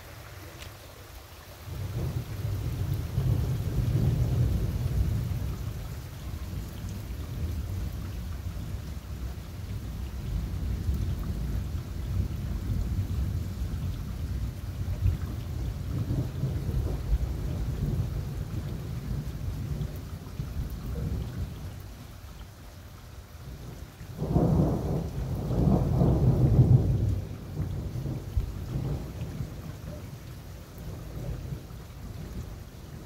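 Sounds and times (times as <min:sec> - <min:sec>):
thunder rumbling: 0:01.7 - 0:05.8, 0:14.3 - 0:21.5, 0:23.6 - 0:30.2.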